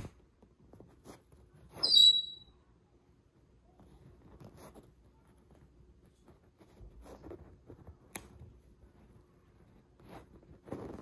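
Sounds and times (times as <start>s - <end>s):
high squeak: 1.8s - 2.6s.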